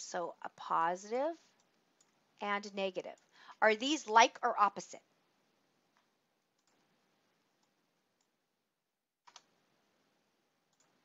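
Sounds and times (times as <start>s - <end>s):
computer mouse clicks: 1.5s - 2.2s, 5.9s - 6.9s, 9.2s - 9.6s, 10.7s - 11.0s.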